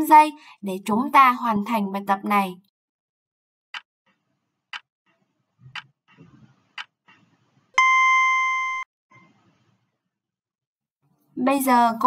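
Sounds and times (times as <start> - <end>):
loud electronic beep: 7.8 - 8.9.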